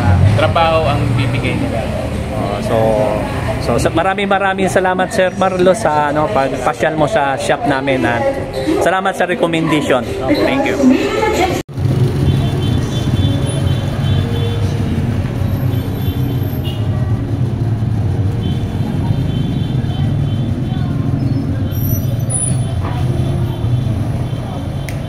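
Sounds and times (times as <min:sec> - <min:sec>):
light street traffic: 0:00.0 - 0:25.0
car engine rumbling: 0:11.7 - 0:25.0.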